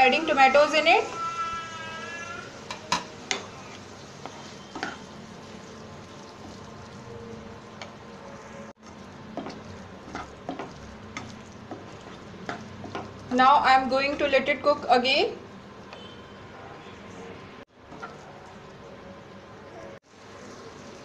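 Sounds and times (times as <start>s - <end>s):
vegetables sizzling in hot oil: 2.4s - 15.8s, 20.0s - 21.0s
spatula scraping a pan: 3.3s - 6.7s, 8.8s - 13.1s.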